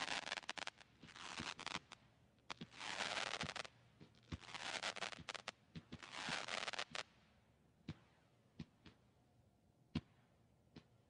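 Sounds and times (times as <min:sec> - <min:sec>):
firework hissing and crackling: 0:00.0 - 0:07.0.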